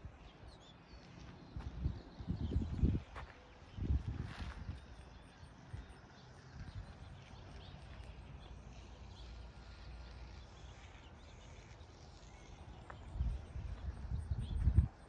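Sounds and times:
footsteps on dirt: 0:00.8 - 0:05.0
wind rumble on microphone: 0:01.4 - 0:15.0.

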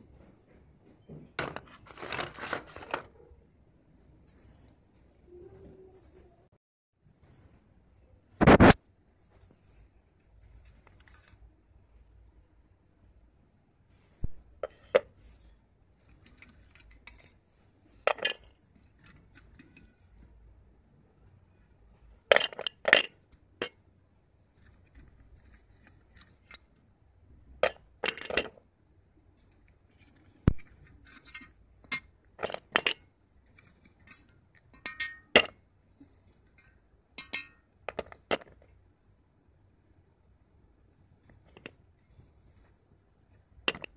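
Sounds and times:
slate pencils clinking on steel: 0:34.0 - 0:35.6, 0:37.2 - 0:38.1.

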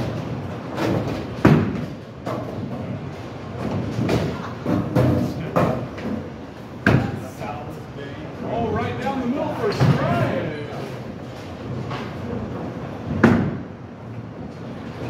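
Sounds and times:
bowling balls thudding and rolling: 0:00.0 - 0:07.4, 0:09.6 - 0:15.0
sharp knocks: 0:00.8 - 0:02.6.

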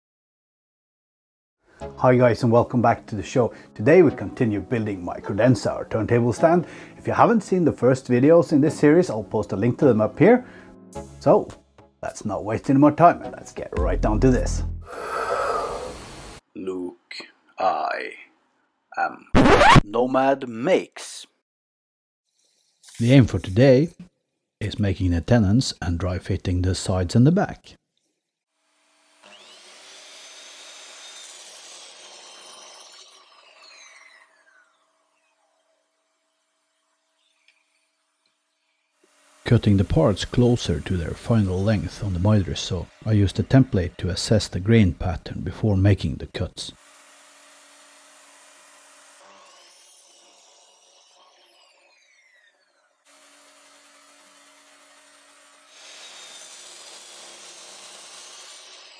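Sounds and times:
miter saw motor whine: 0:14.9 - 0:16.4, 0:46.8 - 0:55.2
miter saw motor whining: 0:14.9 - 0:16.4, 0:29.2 - 0:37.8, 0:46.8 - 0:58.9.

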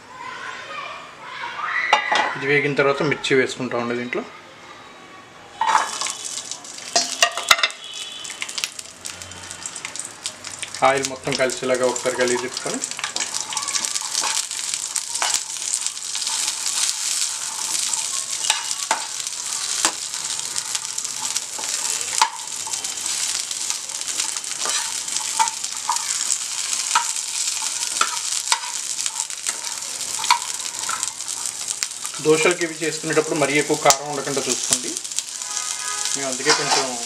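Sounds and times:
chillies sizzling in oil: 0:05.5 - 0:37.0
spatula scraping pan: 0:13.1 - 0:32.2, 0:35.4 - 0:37.0.

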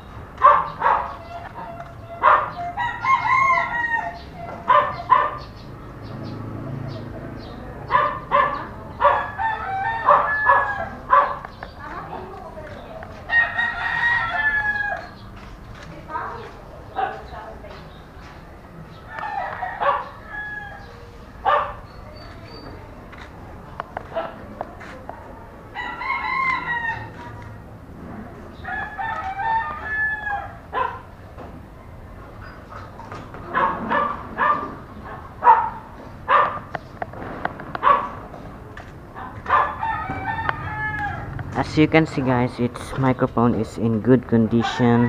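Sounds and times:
rooster crowing: 0:02.5 - 0:04.4, 0:09.0 - 0:11.0, 0:13.3 - 0:15.2, 0:19.1 - 0:21.2, 0:25.7 - 0:27.4, 0:28.6 - 0:30.7, 0:39.5 - 0:41.4.

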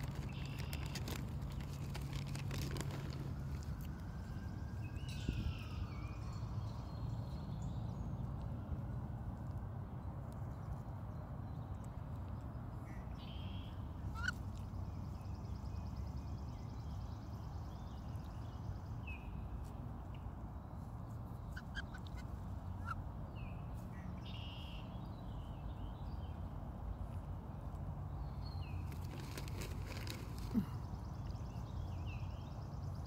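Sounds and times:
ducks whistling calls: 0:14.2 - 0:14.4.

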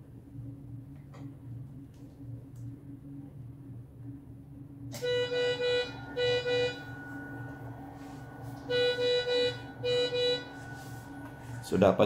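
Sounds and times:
low hum: 0:00.0 - 0:12.0
thin electronic whine: 0:00.0 - 0:12.0
medical alarm beeps: 0:04.9 - 0:12.0.

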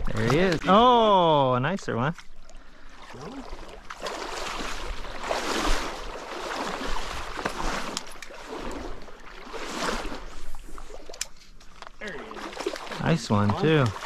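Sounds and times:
stream water rushing and splashing: 0:03.1 - 0:10.9, 0:12.0 - 0:14.0.

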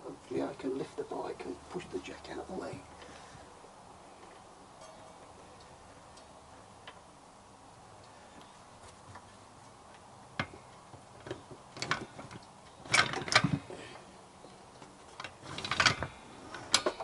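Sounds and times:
metal trolley jack clanking: 0:12.9 - 0:13.7, 0:15.2 - 0:17.0.

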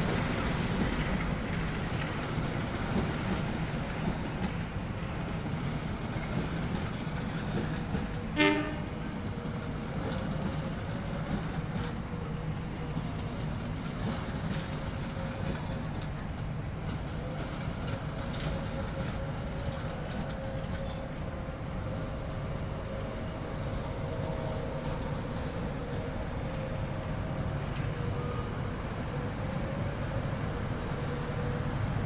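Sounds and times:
train wheels clacking on rails: 0:00.0 - 0:32.0
train horn toot: 0:08.1 - 0:09.3.

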